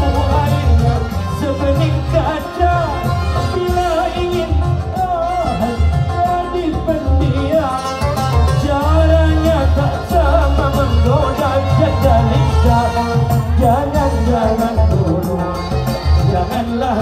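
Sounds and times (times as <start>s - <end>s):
deep rhythmic low beat: 0.0s - 17.0s
man singing melismatic melody: 0.0s - 17.0s
oud playing: 0.0s - 17.0s.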